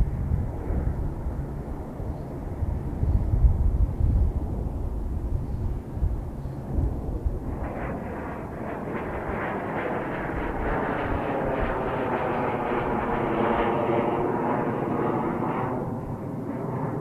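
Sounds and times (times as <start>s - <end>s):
jet engines whining: 6.6s - 17.0s.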